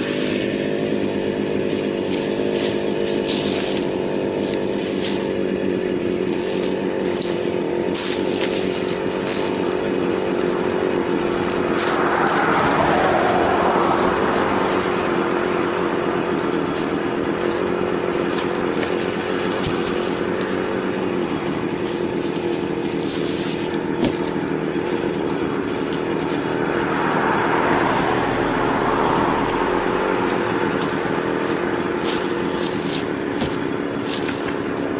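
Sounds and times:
chainsaw engine idling: 0.0s - 34.9s
dry leaves crunching underfoot: 1.6s - 34.9s
logs knocking: 17.4s - 20.6s, 23.2s - 24.6s, 32.0s - 34.9s.

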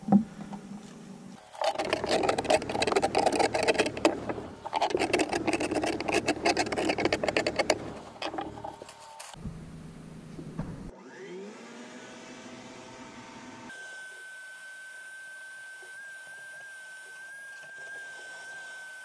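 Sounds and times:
hand tool scraping rotted wood: 1.4s - 9.4s
wet wood crunching: 1.4s - 9.4s.

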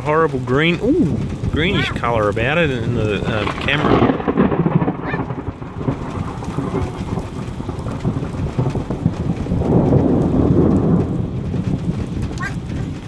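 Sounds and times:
rain falling: 0.0s - 13.0s
thunder rumbling: 0.0s - 13.0s.

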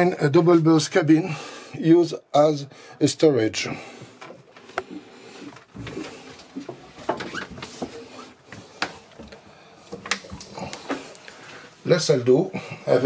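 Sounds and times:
handling knocks and clicks: 5.6s - 11.3s.

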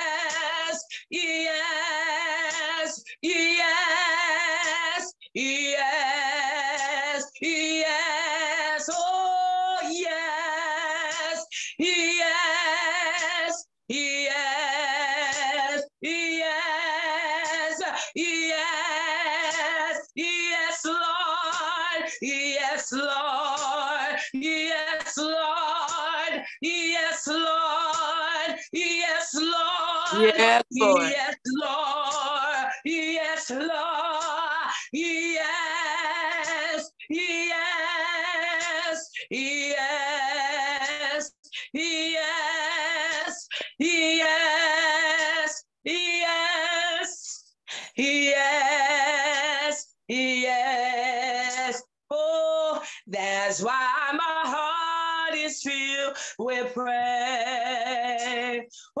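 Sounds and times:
woman singing solo: 30.0s - 31.4s.

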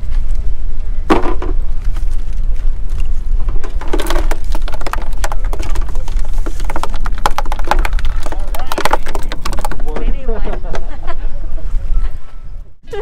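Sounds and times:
wind buffeting microphone: 0.0s - 13.0s
handling clicks and knocks: 3.4s - 10.8s.

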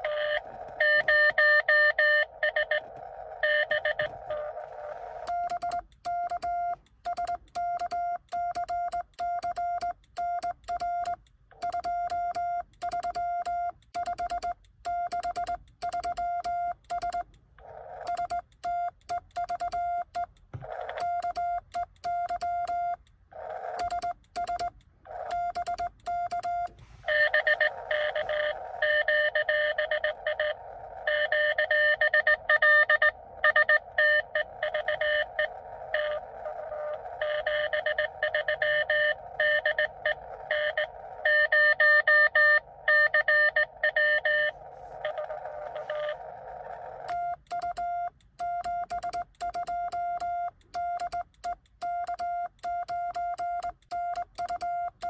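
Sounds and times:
morse code sidetone beeping: 0.0s - 17.4s, 18.0s - 23.0s, 23.6s - 55.0s
lower morse beeps from receiver: 25.3s - 36.2s.

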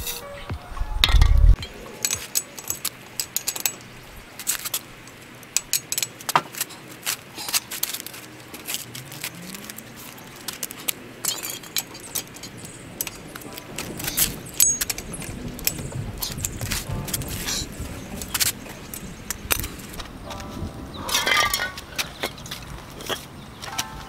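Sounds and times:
lug wrench clicking on lug nuts: 1.6s - 6.7s, 10.4s - 17.6s.

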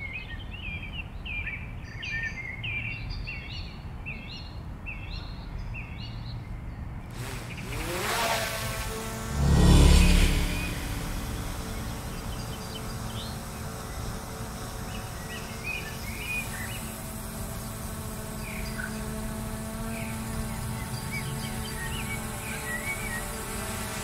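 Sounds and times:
vehicle passing by: 7.4s - 13.6s
steady low hum: 8.4s - 16.3s.

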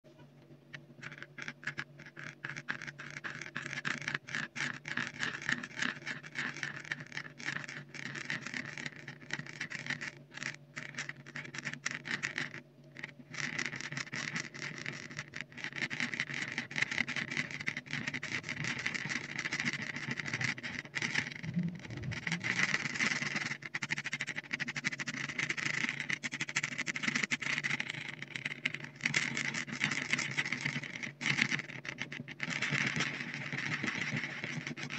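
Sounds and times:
thick paint being stirred: 0.8s - 34.9s
faint low hum: 14.5s - 26.3s.

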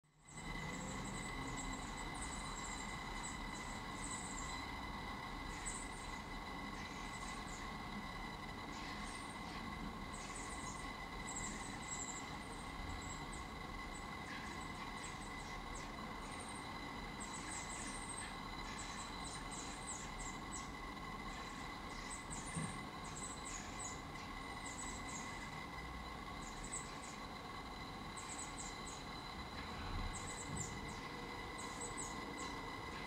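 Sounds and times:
faint steady whine: 0.0s - 33.0s
nestlings peeping: 0.3s - 4.8s, 8.6s - 27.4s, 28.1s - 33.0s.

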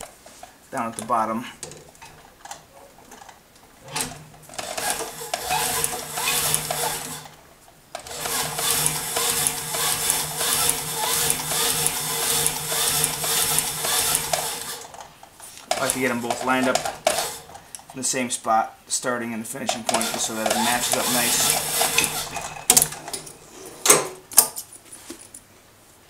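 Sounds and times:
sewing machine stitching: 3.9s - 7.4s, 8.0s - 15.1s, 15.7s - 17.6s, 19.9s - 23.2s.

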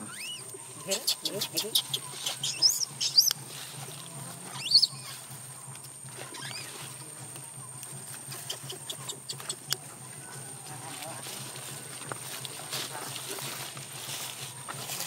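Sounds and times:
baby monkey squealing: 0.0s - 3.4s, 4.5s - 5.3s, 6.3s - 6.9s, 8.4s - 9.7s
monkey chirps: 0.0s - 3.5s, 4.5s - 5.4s, 6.3s - 7.0s, 7.9s - 9.8s.

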